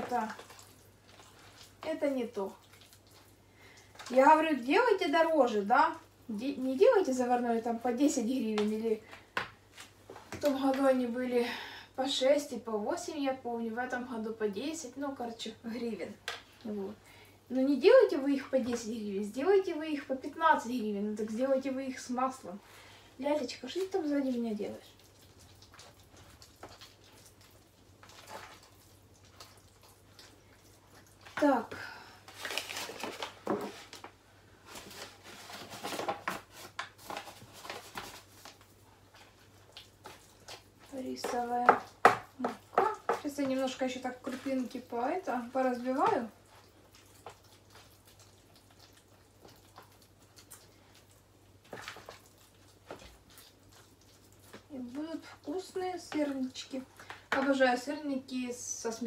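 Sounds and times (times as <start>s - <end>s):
spoon stirring batter in plastic bowl: 0.0s - 5.0s, 23.3s - 58.3s.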